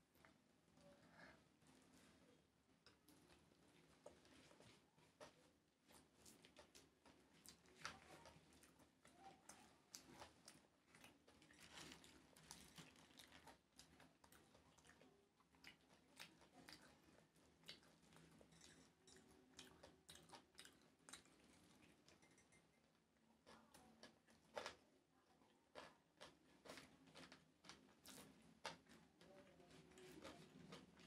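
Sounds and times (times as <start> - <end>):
faint chewing: 0.0 - 31.0
fingers mixing rice: 2.9 - 22.7.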